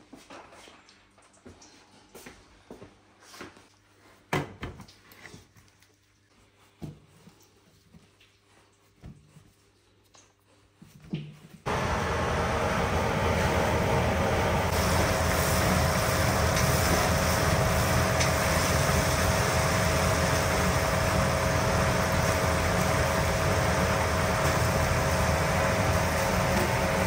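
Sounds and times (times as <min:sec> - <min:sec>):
constant hum: 0:11.7 - 0:27.0
mechanical rushing noise: 0:11.7 - 0:27.0.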